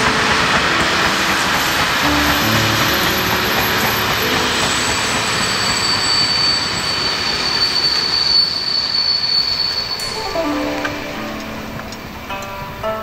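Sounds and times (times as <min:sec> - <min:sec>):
high wheel squeal: 0:00.0 - 0:10.2
train wheels rushing on track: 0:00.0 - 0:12.8.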